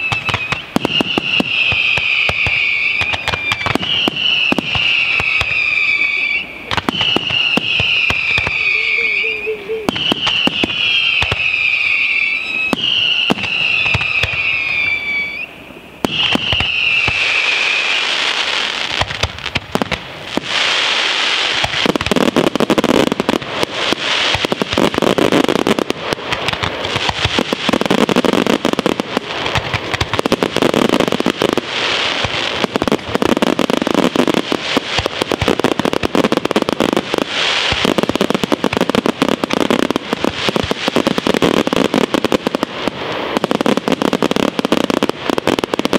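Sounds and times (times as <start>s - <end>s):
heavy firework booms: 0.0s - 15.1s, 16.0s - 45.9s
falling firework whistles: 0.0s - 19.5s, 20.3s - 45.9s.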